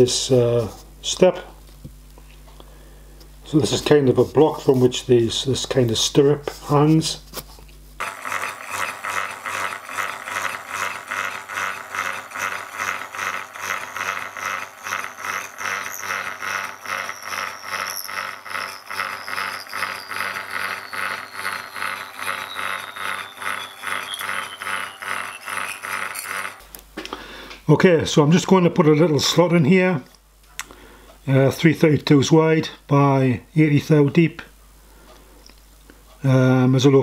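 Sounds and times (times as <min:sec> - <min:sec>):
milling machine cutting metal: 0:08.0 - 0:26.6
faint high whine: 0:13.7 - 0:26.6.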